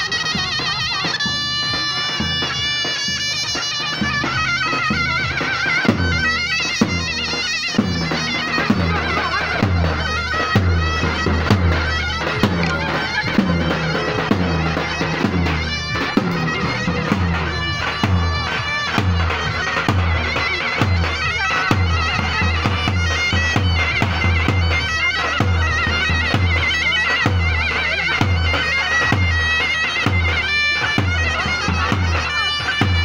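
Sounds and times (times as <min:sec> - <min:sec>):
large drum beats: 0:00.0 - 0:33.0
shrill reed pipe melody: 0:00.0 - 0:33.0.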